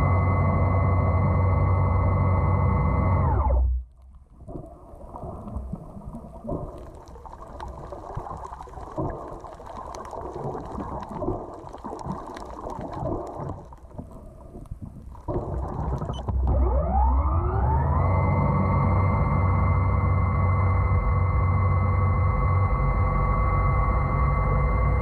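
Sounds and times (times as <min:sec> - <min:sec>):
muffled underwater rush: 0:03.3 - 0:18.1
crackling clicks: 0:03.5 - 0:16.7.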